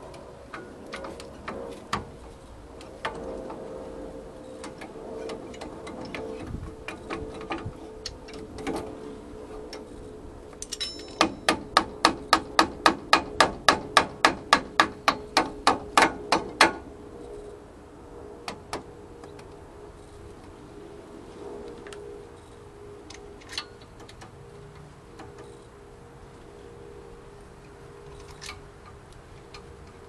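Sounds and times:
hand tool metallic clicks: 10.6s - 11.5s.

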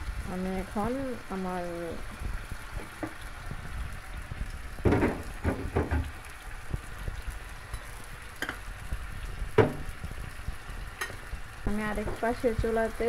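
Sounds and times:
curry sizzling in a pan: 0.0s - 13.0s.

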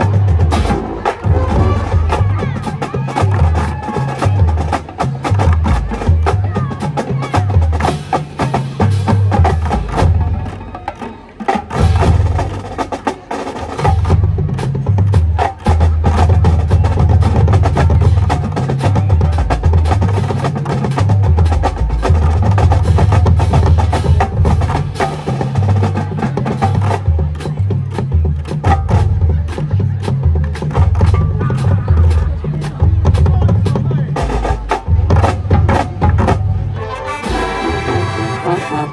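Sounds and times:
horns holding notes: 0.0s - 4.8s, 35.4s - 38.9s
snare drumline: 0.0s - 38.9s.

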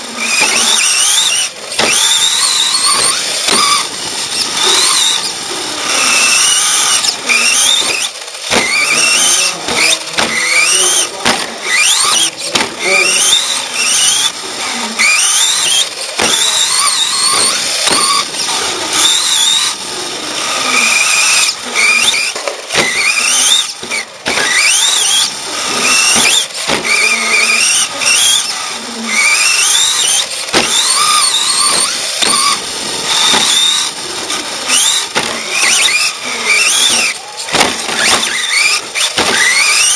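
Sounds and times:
electric motor whining: 0.0s - 39.9s
chassis clicks and knocks: 1.7s - 5.4s, 6.3s - 12.8s, 15.1s - 19.7s, 25.8s - 27.0s, 29.5s - 39.9s.

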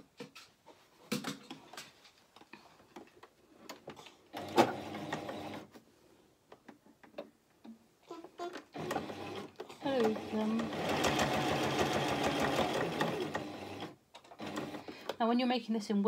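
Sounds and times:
sewing machine stitching: 4.3s - 5.7s, 8.7s - 15.0s.

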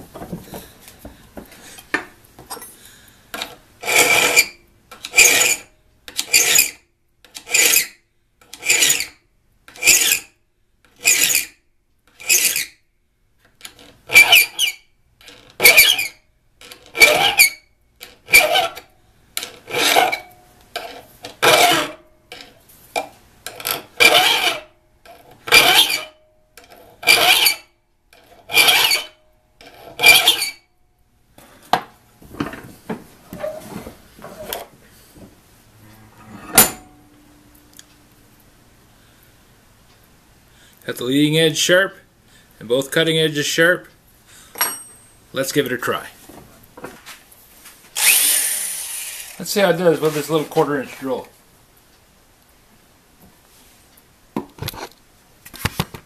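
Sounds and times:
hand file scraping steel: 3.8s - 6.8s, 7.4s - 7.9s, 8.6s - 9.1s, 9.7s - 10.3s, 11.0s - 12.7s, 14.1s - 14.8s, 15.6s - 16.2s, 16.9s - 17.6s, 18.3s - 18.8s, 19.6s - 22.0s, 24.0s - 24.7s, 25.5s - 26.1s, 26.9s - 27.7s, 28.3s - 30.6s.

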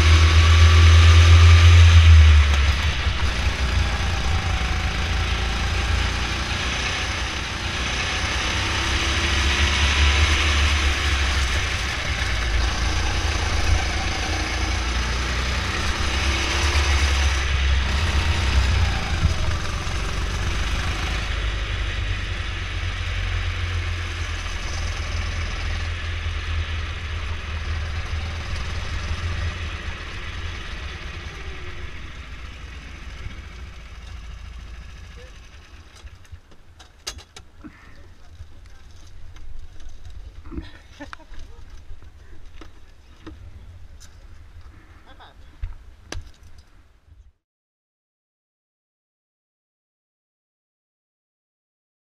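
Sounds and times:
go-kart engine running: 0.0s - 45.4s.

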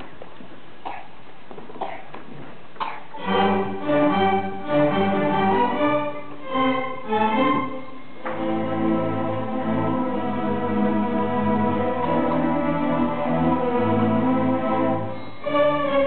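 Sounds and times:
string orchestra playing chords: 3.2s - 16.0s.

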